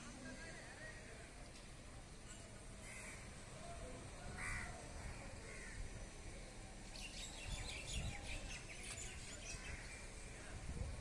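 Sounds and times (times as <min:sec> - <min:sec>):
birds calling: 0:04.4 - 0:10.3.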